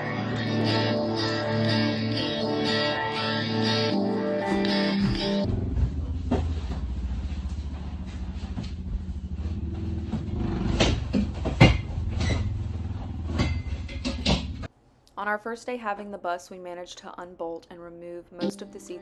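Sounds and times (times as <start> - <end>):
metal knocks and clanks: 10.1 - 14.7.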